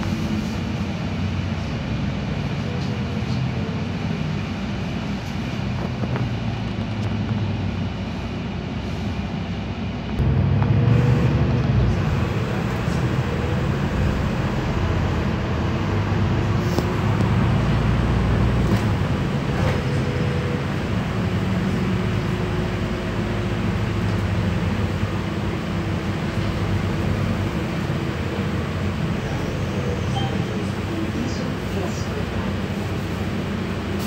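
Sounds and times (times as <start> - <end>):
bus engine rumble: 0.0 - 34.0
road noise: 0.0 - 34.0.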